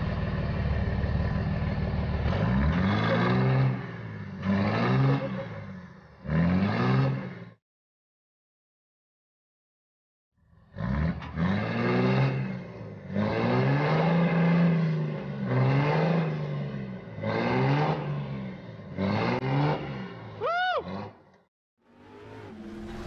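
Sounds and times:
pickup truck engine revving: 0.0s - 7.4s, 10.7s - 21.1s.

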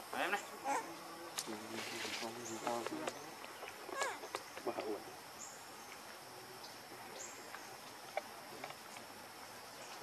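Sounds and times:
insects droning: 0.0s - 10.0s.

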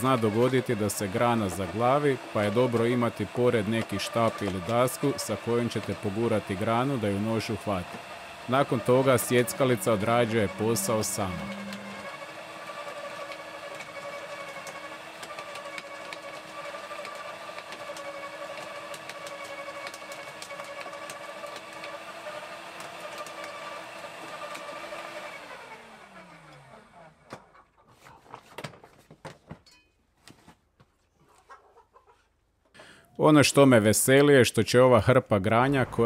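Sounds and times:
motor running down: 0.0s - 15.9s
electric garden shredder running: 0.0s - 27.3s.

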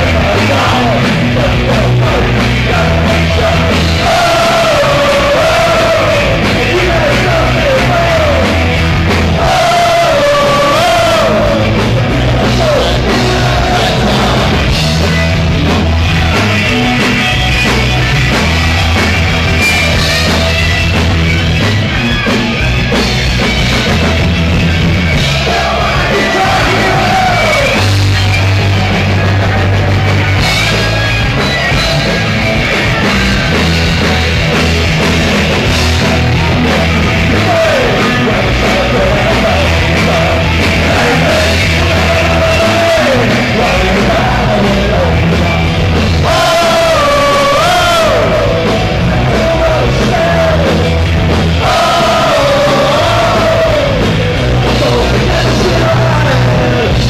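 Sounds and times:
punk rock band playing: 0.0s - 57.0s
person singing: 25.4s - 27.9s, 37.2s - 45.6s, 51.6s - 57.0s.

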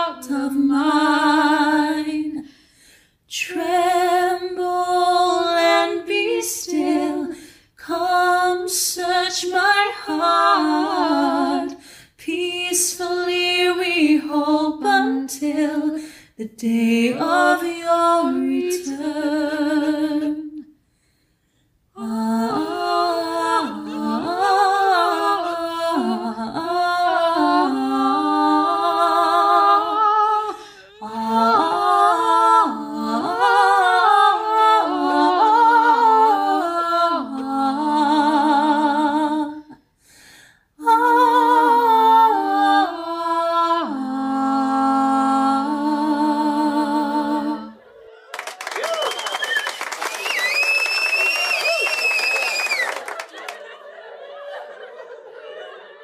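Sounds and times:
slow singing: 3.3s - 20.8s, 21.9s - 40.0s, 48.8s - 53.0s.

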